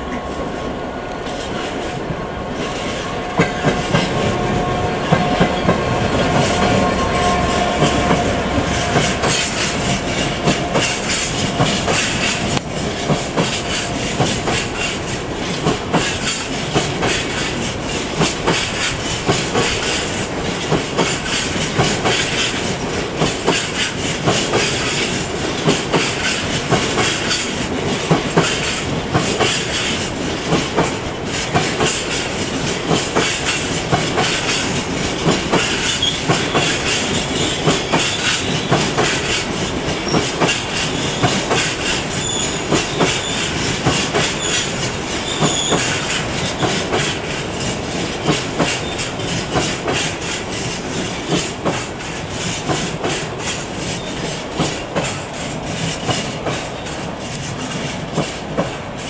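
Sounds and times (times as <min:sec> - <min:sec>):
freight train wheels clattering: 0:00.0 - 0:59.0.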